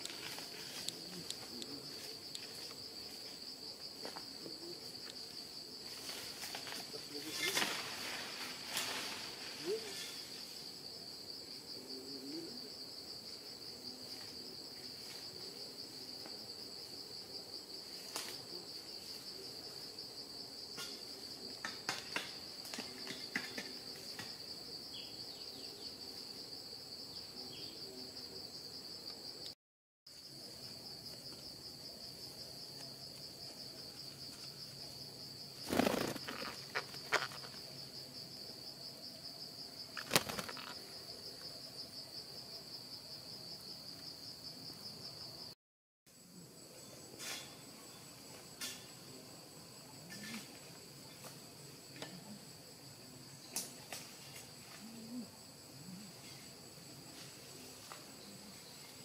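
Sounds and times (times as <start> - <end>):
insects droning: 0.0 - 59.0.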